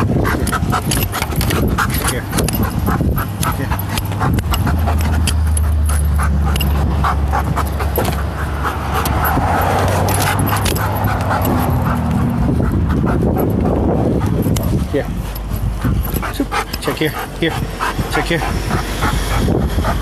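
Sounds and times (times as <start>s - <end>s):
dog sniffing: 0.0s - 20.0s.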